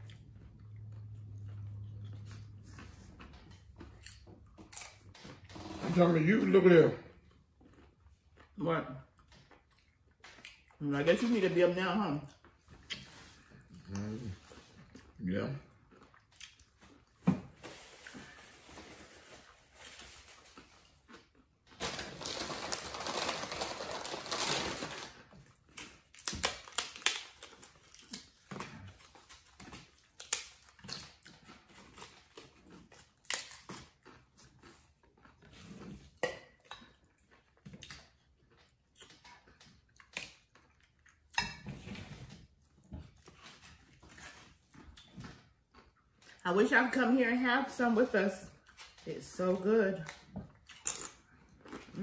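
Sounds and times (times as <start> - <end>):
chewing: 0.0 - 5.5, 7.2 - 10.8, 12.2 - 17.2, 17.8 - 21.5, 25.3 - 46.4, 48.5 - 49.1, 50.0 - 52.0
tostadas crunching: 0.0 - 42.0, 42.7 - 52.0
rustling: 21.8 - 25.4.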